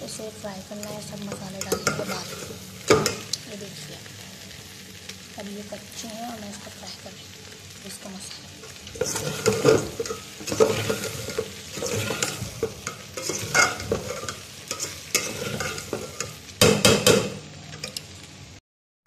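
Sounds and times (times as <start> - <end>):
oil sizzling: 0.0 - 18.6
metal spatula scraping pot: 1.3 - 3.3, 8.6 - 18.0.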